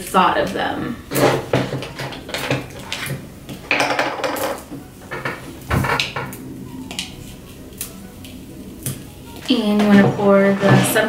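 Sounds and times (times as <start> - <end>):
crackers snapping: 5.5 - 9.5.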